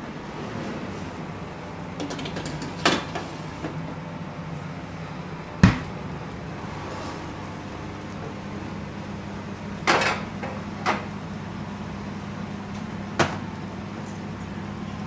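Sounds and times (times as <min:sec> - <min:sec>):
steady kitchen hum: 0:00.0 - 0:15.0
fridge door thumping shut: 0:05.6 - 0:05.9.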